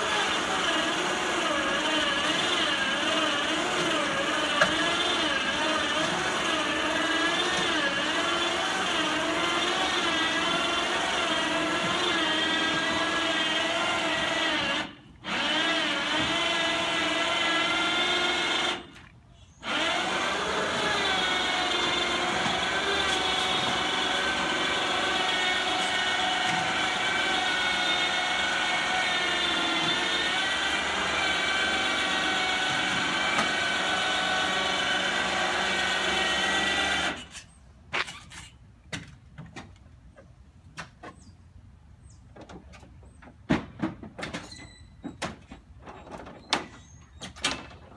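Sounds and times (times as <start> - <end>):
loader motor whining: 0.0 - 37.5
clunks: 42.2 - 47.9.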